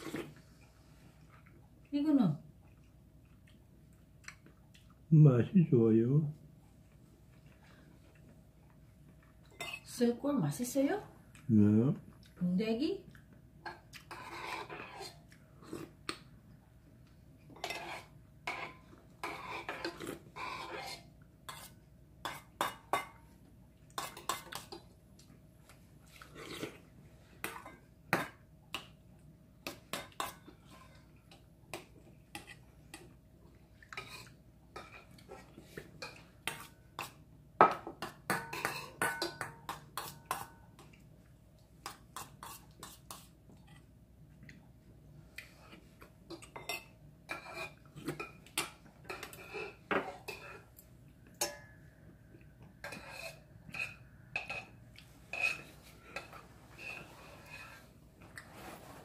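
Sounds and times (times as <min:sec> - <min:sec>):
metal spoon clinking on steel bowls: 0:36.0 - 0:40.9, 0:46.3 - 0:50.6, 0:51.3 - 0:51.8, 0:52.8 - 0:57.0.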